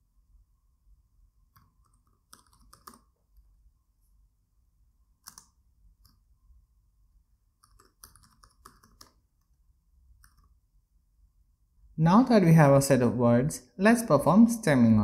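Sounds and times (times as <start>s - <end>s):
keyboard typing clicks: 1.5s - 3.2s, 5.2s - 6.2s, 7.6s - 9.5s, 10.2s - 10.6s.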